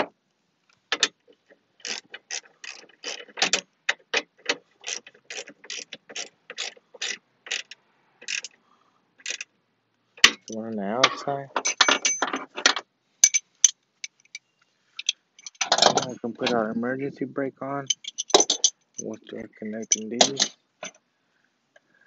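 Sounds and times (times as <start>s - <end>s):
ratchet wrench clicking: 1.8s - 3.6s, 4.8s - 8.5s, 9.2s - 9.5s.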